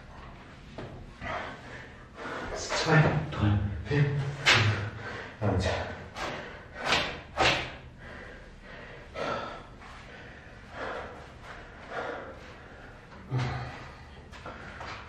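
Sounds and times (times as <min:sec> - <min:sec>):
man breathing hard: 0:01.1 - 0:02.8, 0:04.7 - 0:15.0.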